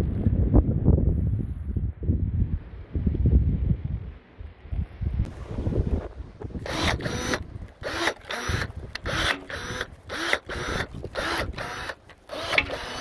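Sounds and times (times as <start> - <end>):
wind on microphone: 0.0 - 13.0
pruning shears whirring: 6.6 - 13.0.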